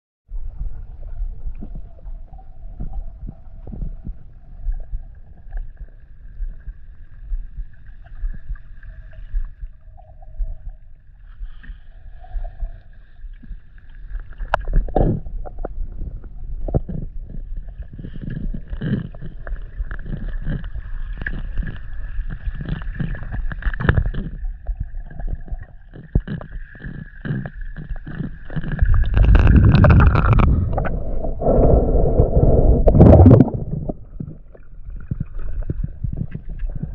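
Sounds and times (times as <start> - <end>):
underwater low rumble: 0.3 - 36.9
water gushing: 18.2 - 36.9.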